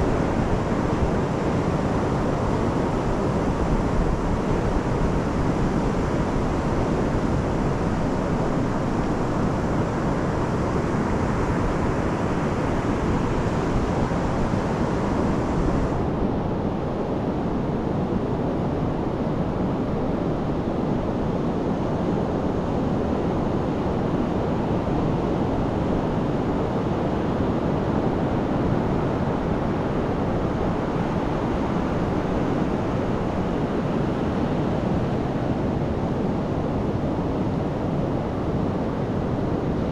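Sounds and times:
wind rumbling on microphone: 0.0s - 39.9s.

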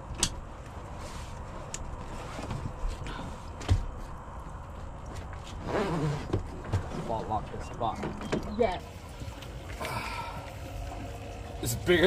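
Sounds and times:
knocks and clatter on boat: 6.2s - 9.3s.

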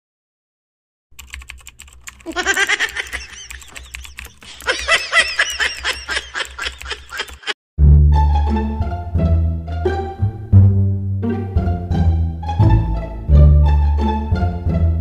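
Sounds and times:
laptop keyboard typing: 1.1s - 7.6s.

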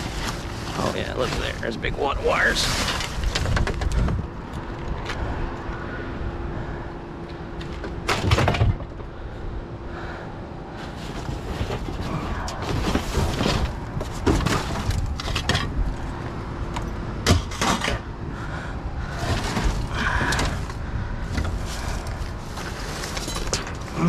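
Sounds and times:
junk clattering and knocking: 2.7s - 5.2s, 7.6s - 9.2s, 10.9s - 18.2s, 19.0s - 24.0s.

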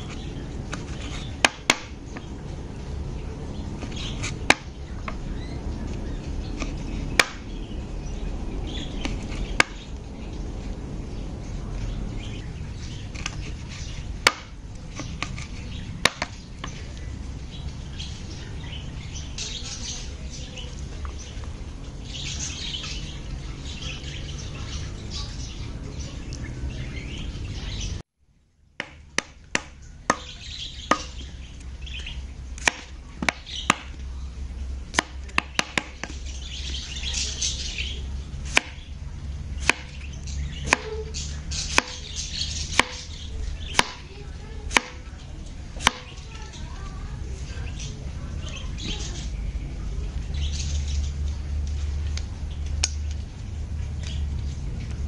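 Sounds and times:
birds chirping: 0.0s - 28.1s, 28.8s - 55.0s
knife chopping on cutting board: 39.6s - 40.0s, 43.7s - 44.0s, 44.7s - 45.0s.

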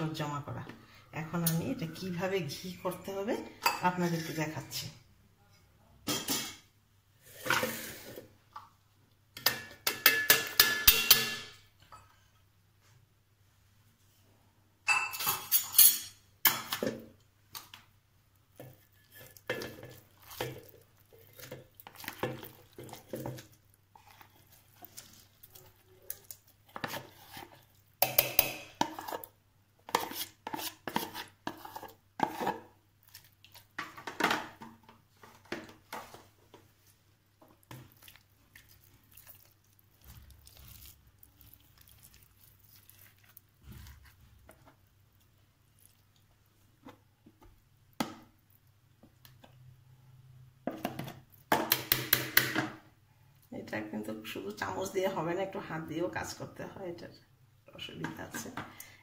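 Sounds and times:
metal spoon clattering on tubs: 9.4s - 12.1s, 28.0s - 29.1s.

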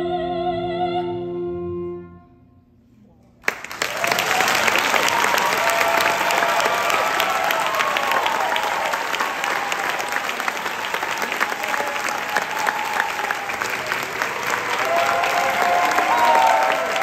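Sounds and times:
audience applauding: 3.4s - 17.0s.

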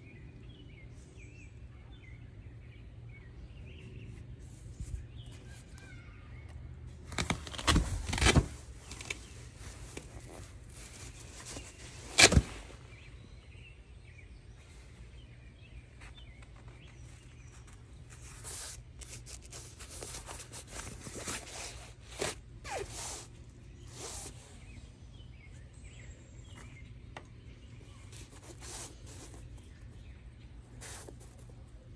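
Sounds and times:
nylon cover rustling: 7.1s - 13.0s, 17.6s - 24.4s.

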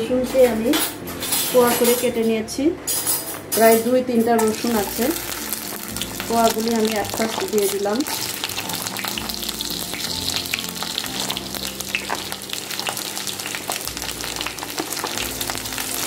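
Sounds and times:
garlic sizzling in hot oil: 4.4s - 16.0s.

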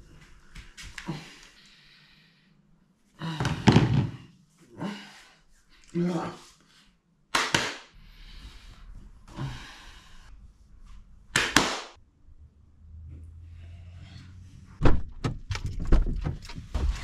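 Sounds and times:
low steady hum: 8.0s - 11.4s
sharp knocks and thumps: 14.8s - 17.0s.

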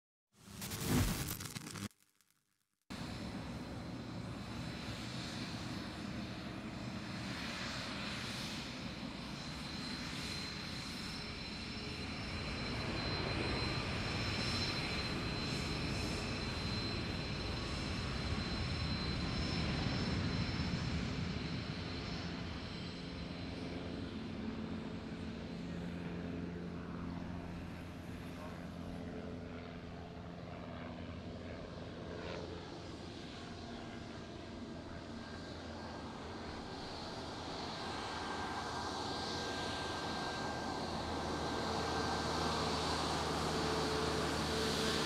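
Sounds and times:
jet engines whining: 35.6s - 45.0s.

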